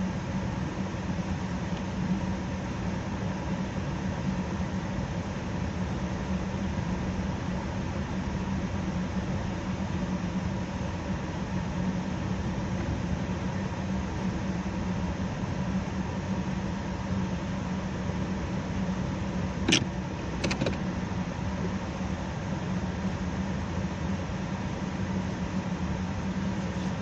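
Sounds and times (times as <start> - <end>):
car engine and road hum: 19.2 - 23.2
sharp clicks: 19.7 - 20.8.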